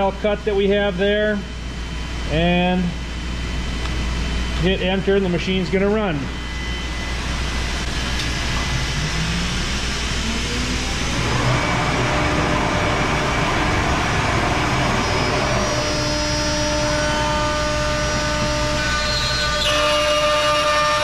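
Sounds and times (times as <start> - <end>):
cnc router running: 0.0 - 21.0
multi-tone spindle cutting whine: 0.0 - 21.0
low drone: 4.6 - 19.7.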